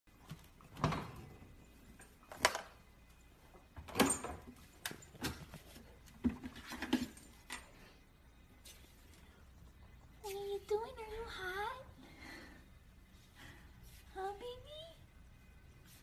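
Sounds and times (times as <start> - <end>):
refrigerator door opening: 0.7 - 1.4.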